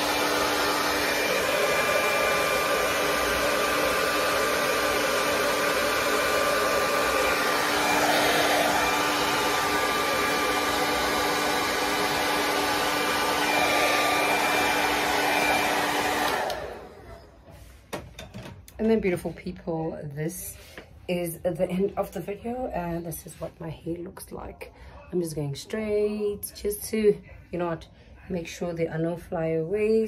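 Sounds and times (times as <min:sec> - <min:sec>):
hair dryer running: 0:00.0 - 0:17.5.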